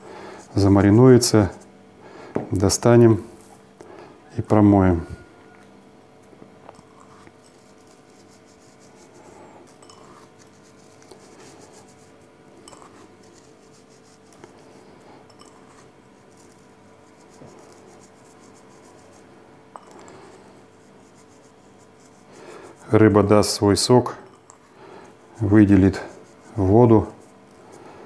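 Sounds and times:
fingers clinking in a small bowl: 9.7 - 11.2, 12.6 - 13.5, 15.2 - 16.7, 19.7 - 20.1.

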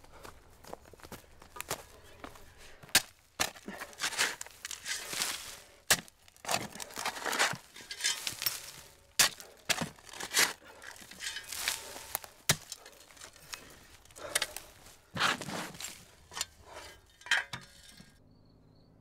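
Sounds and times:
soil scraping and rustling: 0.2 - 18.2
shovel striking into earth: 2.8 - 18.0.

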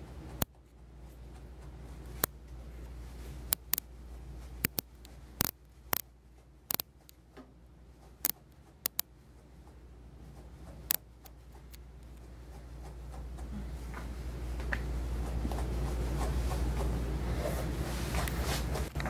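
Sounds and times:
grooming tools clicking and snipping: 3.5 - 3.9, 4.6 - 7.3, 8.0 - 13.5.

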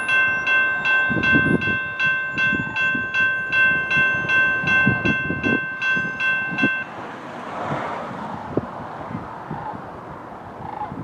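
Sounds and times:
electronic crossing bell ringing: 0.0 - 7.0
steady ringing tone: 0.0 - 7.0.

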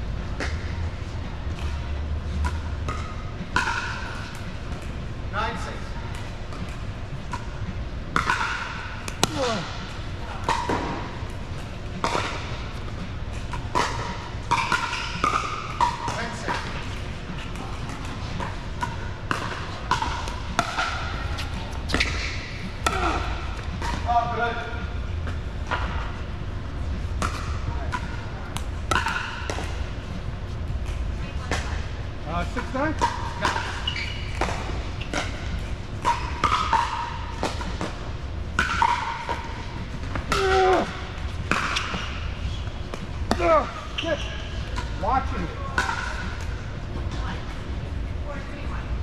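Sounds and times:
shoe squeal: 33.8 - 34.4, 43.9 - 44.6
paddles hitting plastic balls: 42.9 - 43.8.

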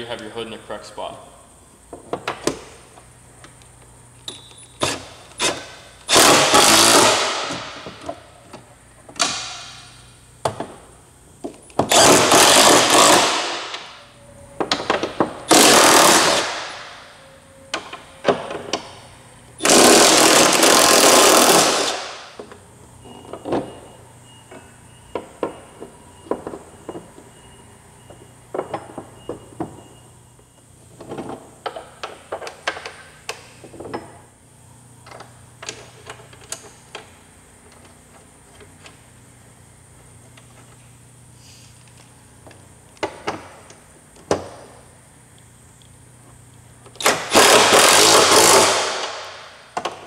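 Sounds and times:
impact wrench bursts: 4.7 - 8.0, 11.8 - 13.9, 14.8 - 17.0, 19.6 - 22.4, 47.0 - 49.9.

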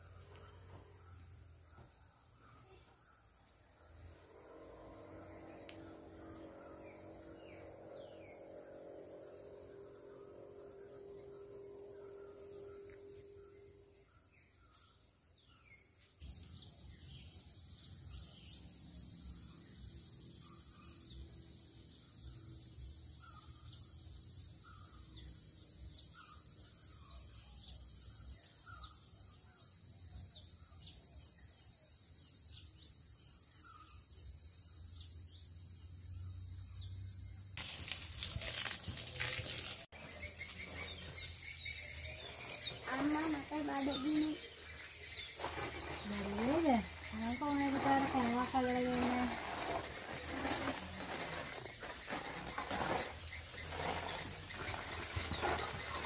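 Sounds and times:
high insect buzz: 3.8 - 29.6, 37.6 - 56.0
bird chirps: 5.4 - 56.0.

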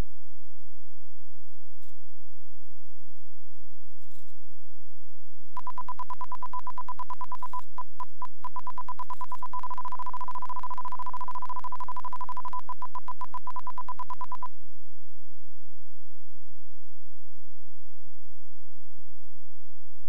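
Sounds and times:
stall warning beeping: 5.6 - 14.5.

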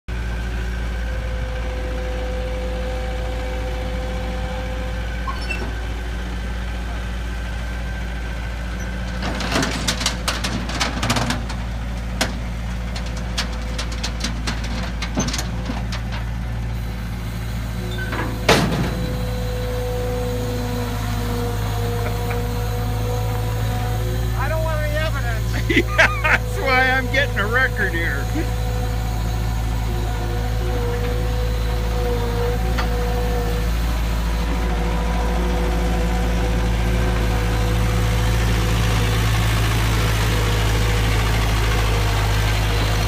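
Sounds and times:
diesel engine running: 0.1 - 43.0
metal clanks from trailer deck: 17.9 - 19.2.

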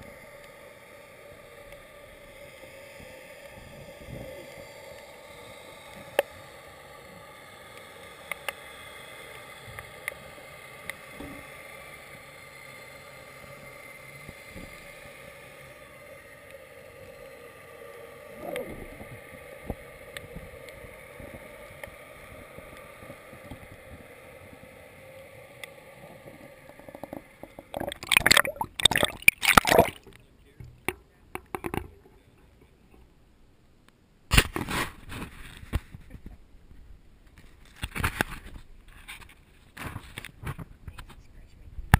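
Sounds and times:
muffled underwater hiss: 0.0 - 33.1
water sloshing and splashing: 26.8 - 30.2.

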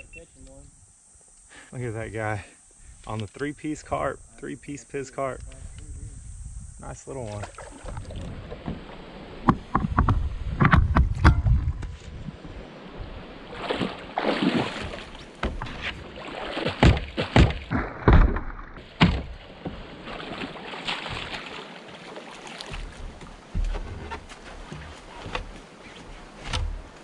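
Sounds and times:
water splashing: 7.2 - 9.8, 12.6 - 27.0
knocks on kayak: 14.8 - 16.0, 16.6 - 19.9.

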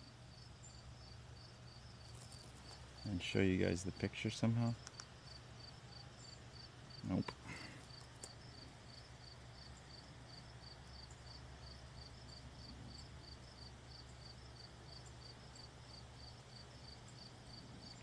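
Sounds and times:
cricket chirping: 0.0 - 18.0
steady low hum: 0.0 - 18.0.

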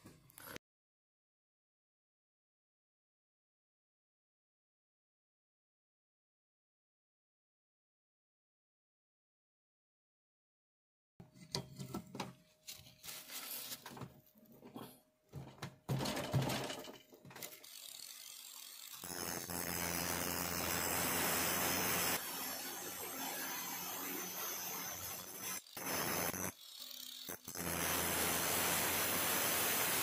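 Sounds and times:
angle grinder grinding metal: 16.4 - 30.0.

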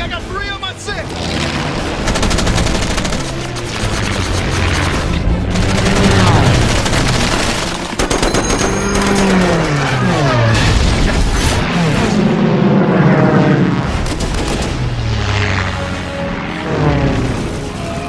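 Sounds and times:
propeller planes diving past: 0.0 - 18.0
machine-gun fire: 2.0 - 10.5.

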